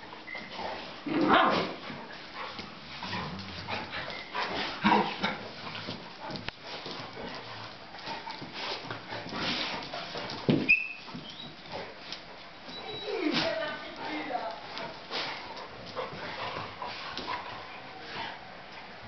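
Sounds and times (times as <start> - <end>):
dogs scuffling: 0.0 - 19.0
dog whining: 12.7 - 13.4.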